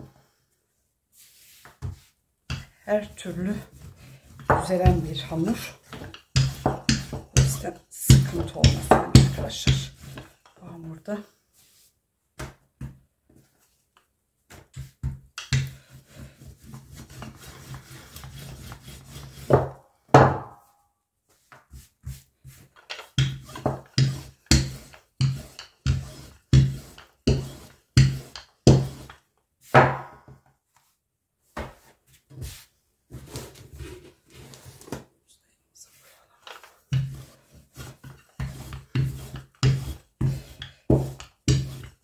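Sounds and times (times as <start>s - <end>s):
rolling pin rolling over dough: 1.1s - 34.7s, 36.0s - 42.0s
rolling pin knocks on worktop: 29.8s - 30.2s.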